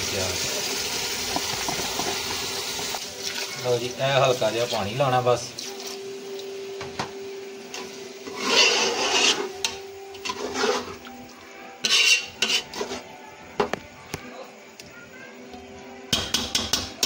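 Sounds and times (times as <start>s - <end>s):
metal spoon scraping a pot: 8.2s - 11.0s, 11.8s - 13.1s
spoon clinking against pot: 11.8s - 12.7s.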